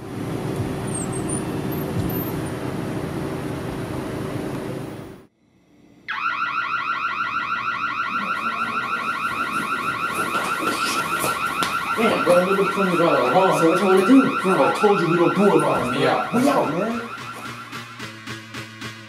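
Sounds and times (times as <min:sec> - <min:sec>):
warbling electronic alarm: 0:06.1 - 0:19.0.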